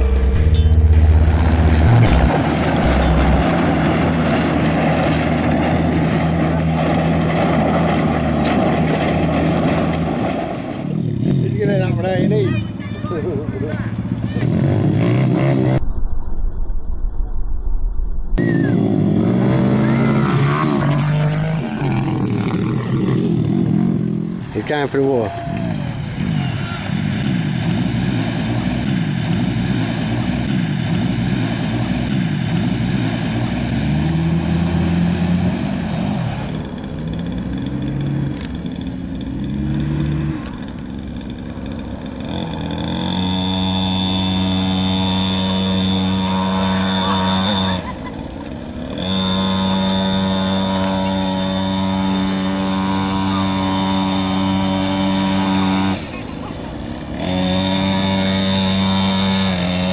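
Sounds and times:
high-pitched engine drone: 0:00.0 - 0:05.8, 0:28.0 - 0:59.9
suv engine revving: 0:00.0 - 0:15.8, 0:18.4 - 0:59.9.

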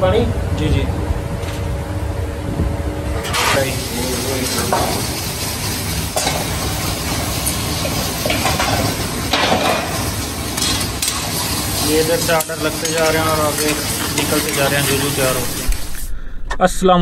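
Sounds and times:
metal utensil scraping a pan: 0:03.2 - 0:15.7
curry sizzling in pans: 0:03.2 - 0:16.1.

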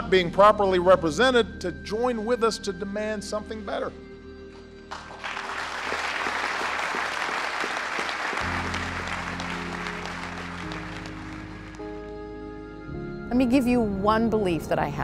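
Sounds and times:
soft music with held chords: 0:00.0 - 0:05.3, 0:08.4 - 0:15.0
audience applauding: 0:04.9 - 0:12.2.

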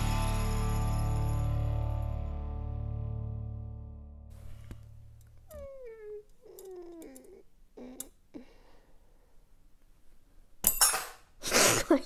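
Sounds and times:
cat meowing: 0:05.5 - 0:08.1.

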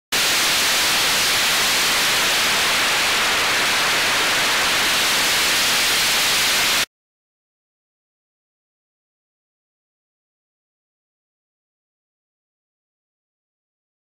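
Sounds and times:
static hiss: 0:00.1 - 0:06.9.

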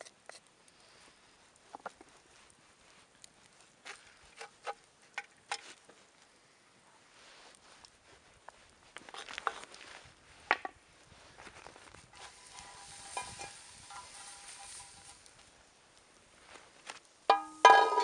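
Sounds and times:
steady hiss: 0:09.7 - 0:18.0
wooden spoon scraping pot: 0:12.2 - 0:15.2.

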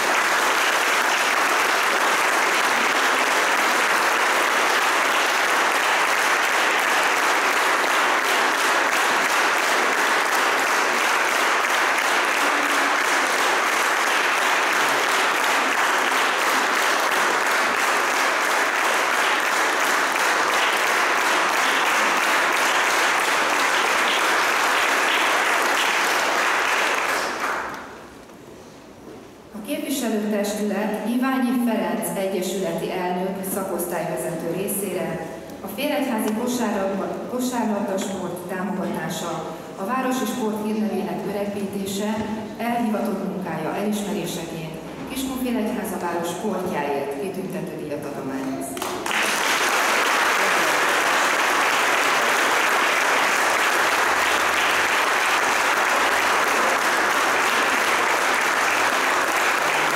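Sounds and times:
audience applauding: 0:00.0 - 0:28.1, 0:48.8 - 0:59.9.

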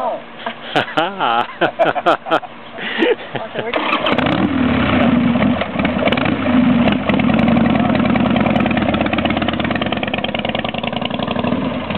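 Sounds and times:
motorcycle engine revving: 0:03.7 - 0:11.9.

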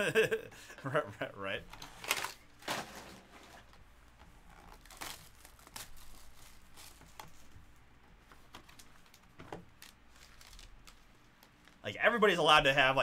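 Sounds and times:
foil packs crinkling: 0:01.8 - 0:03.7, 0:04.6 - 0:07.4, 0:08.6 - 0:11.9.

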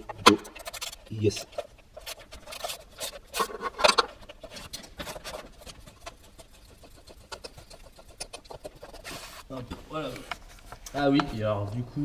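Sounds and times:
metal parts handled: 0:00.1 - 0:05.2.

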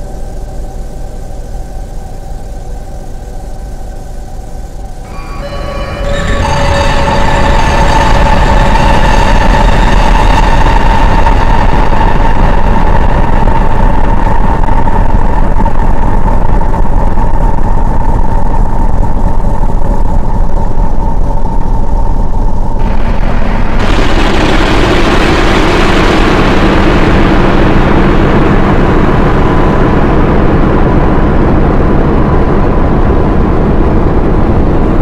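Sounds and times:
steady high tone: 0:00.0 - 0:13.8
dense low electronic drone: 0:00.0 - 0:35.0.

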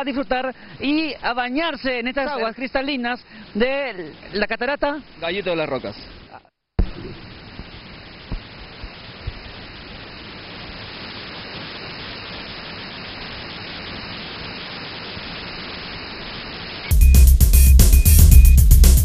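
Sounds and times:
waterfall rushing: 0:09.0 - 0:17.0.

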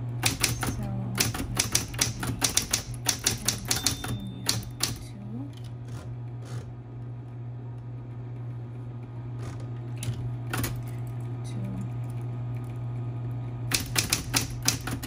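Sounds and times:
electric typewriter motor humming: 0:00.0 - 0:12.8, 0:13.6 - 0:15.0
typebar strikes: 0:00.2 - 0:05.0, 0:13.7 - 0:15.0
typewriter clicks: 0:00.2 - 0:05.0, 0:13.7 - 0:15.0.

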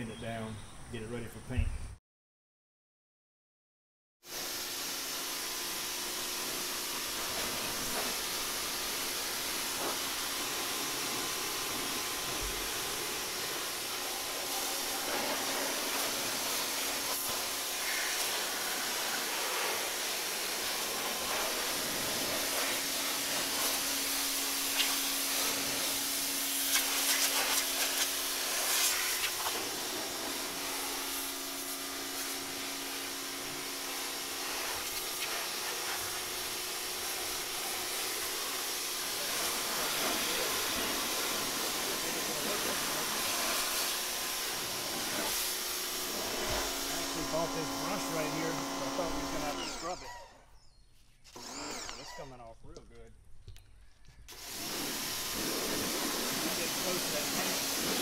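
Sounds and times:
pressure washer spraying: 0:04.3 - 0:50.0, 0:54.3 - 0:58.0
water spattering: 0:05.9 - 0:33.0, 0:33.7 - 0:48.3, 0:54.3 - 0:58.0.

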